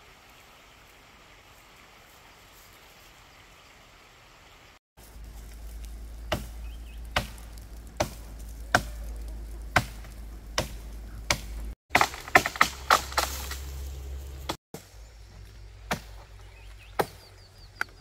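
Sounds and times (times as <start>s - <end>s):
chopping strokes: 6.3s - 9.0s, 9.7s - 13.7s.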